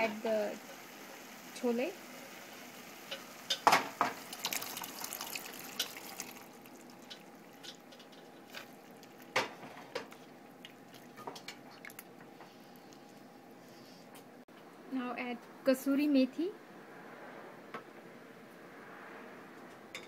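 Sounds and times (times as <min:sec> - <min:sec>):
dense crackling in hot pan: 0:00.0 - 0:11.8
liquid splash into pan: 0:03.5 - 0:09.6
spatula stirring in pan: 0:04.4 - 0:11.8.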